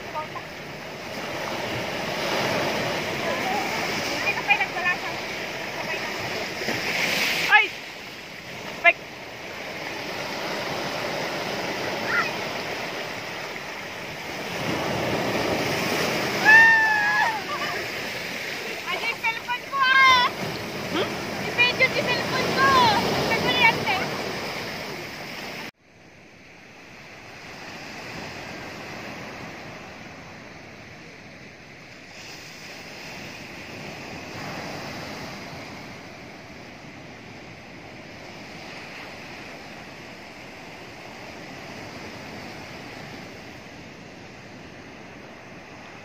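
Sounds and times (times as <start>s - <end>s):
surf washing on pebble beach: 0.0s - 25.7s.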